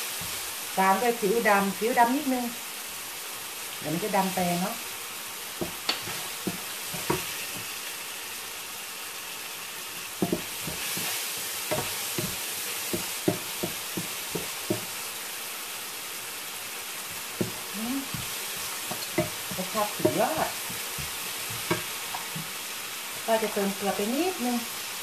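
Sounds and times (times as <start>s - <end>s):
food sizzling in frying pan: 0.0s - 25.0s
wooden spatula knocking pan: 5.6s - 7.7s, 10.2s - 15.0s, 17.4s - 22.6s.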